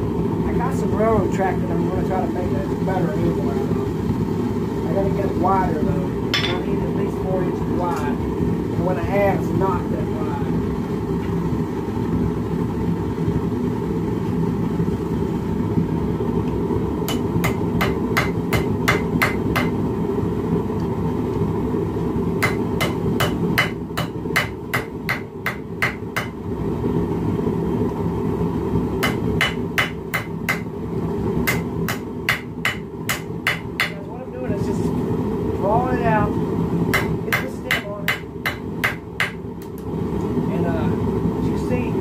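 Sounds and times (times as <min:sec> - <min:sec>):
hammer striking hot metal on anvil: 0:06.3 - 0:06.7, 0:17.1 - 0:19.8, 0:22.4 - 0:26.4, 0:29.0 - 0:30.7, 0:31.4 - 0:34.0, 0:36.9 - 0:39.4.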